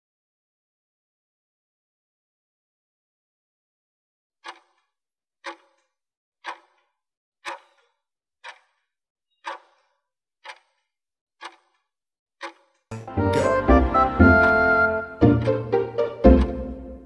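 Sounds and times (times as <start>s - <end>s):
sharp timer ticks: 4.4s - 4.8s, 5.4s - 5.8s, 6.4s - 6.8s, 7.4s - 8.8s, 9.4s - 10.8s, 11.4s - 11.8s, 12.4s - 13.0s.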